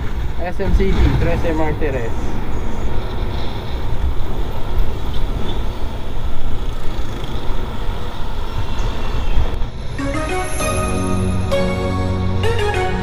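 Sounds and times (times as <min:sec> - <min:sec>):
wind buffeting microphone: 0:00.0 - 0:10.0
road noise: 0:00.0 - 0:13.0
scooter engine: 0:02.6 - 0:10.2.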